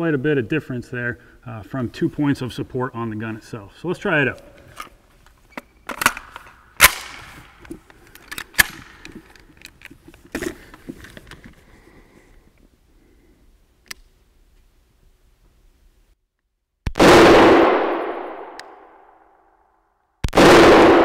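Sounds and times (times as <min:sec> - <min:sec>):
rifle shots echoing indoors: 0:06.8 - 0:07.3, 0:16.9 - 0:19.4, 0:20.2 - 0:21.0.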